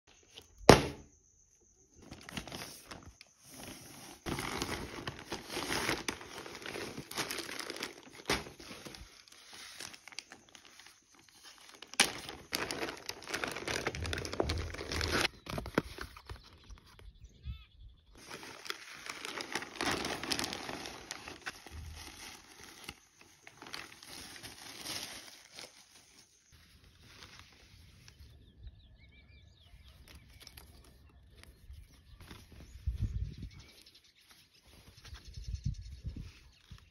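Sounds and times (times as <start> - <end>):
plastic packaging crinkling: 2.0 - 17.0, 18.2 - 28.1.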